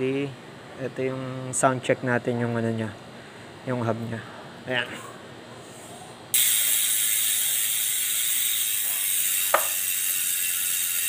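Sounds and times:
bicycle hub ratcheting buzz: 6.3s - 11.0s.

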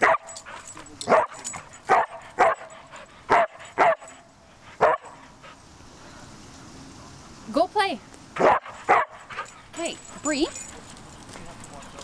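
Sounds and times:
dog barking: 0.0s - 0.4s, 1.1s - 4.2s, 4.8s - 5.2s, 8.4s - 9.5s.

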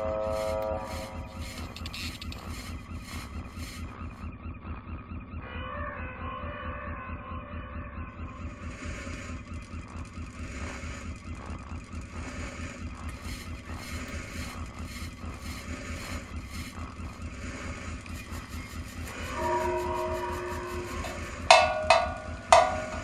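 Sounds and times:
short hissing pulses: 0.0s - 4.1s
low mechanical rumble with hiss: 0.0s - 4.2s, 8.2s - 23.0s.

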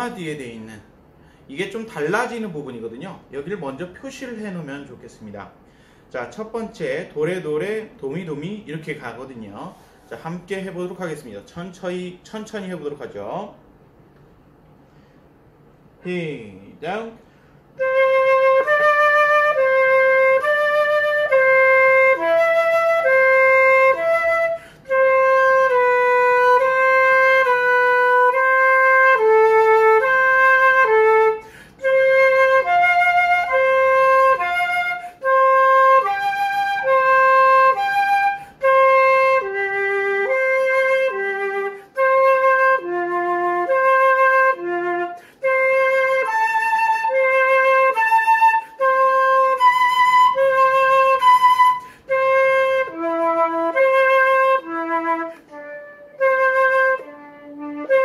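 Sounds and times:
flutist breathing: 1.0s - 1.5s, 5.6s - 6.1s, 9.7s - 10.2s, 14.8s - 15.5s, 17.2s - 17.8s, 24.5s - 24.9s, 31.4s - 31.8s, 38.3s - 38.6s, 45.2s - 45.5s, 51.8s - 52.1s
solo flute playing: 16.6s - 58.0s.

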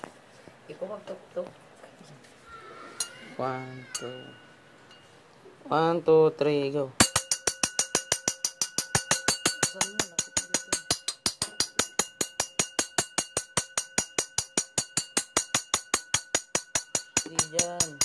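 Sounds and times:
faint steady tone: 3.0s - 5.7s.

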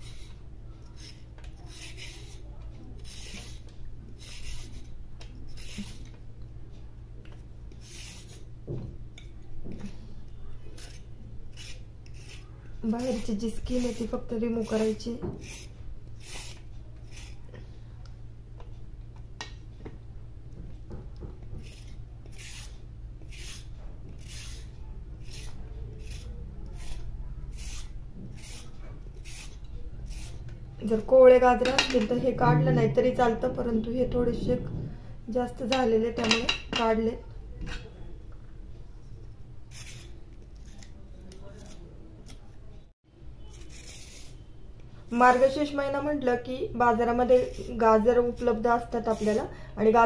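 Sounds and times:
peeler scraping carrot: 0.0s - 6.2s, 7.2s - 8.5s, 10.6s - 17.5s, 21.5s - 33.2s, 39.6s - 42.6s, 43.4s - 44.6s, 47.0s - 50.0s
faint low hum: 0.0s - 36.2s.

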